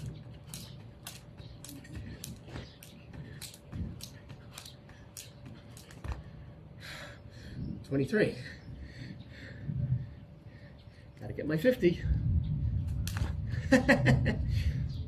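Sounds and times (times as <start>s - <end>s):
jump rope slapping concrete: 0.0s - 6.4s.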